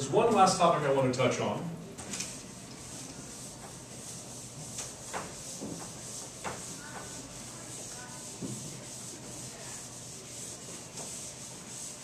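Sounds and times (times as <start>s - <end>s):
eraser rubbing on whiteboard: 2.6s - 12.0s.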